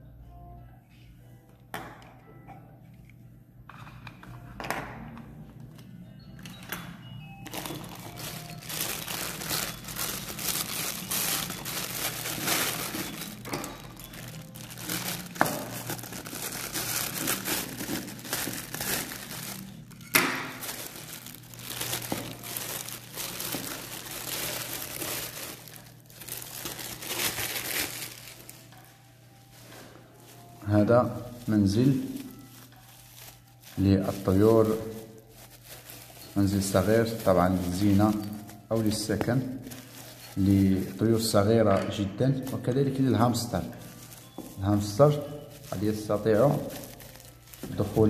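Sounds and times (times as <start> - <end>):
plastic and bubble wrap crinkling: 5.1 - 48.0.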